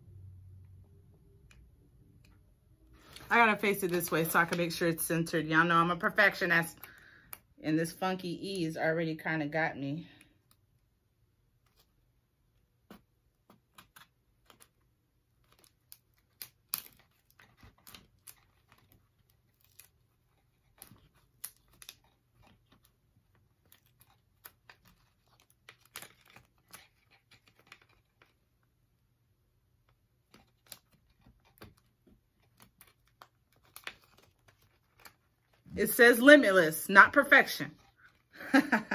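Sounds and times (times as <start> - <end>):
vinyl letters crinkling: 12.9 - 28.9, 29.7 - 38.9.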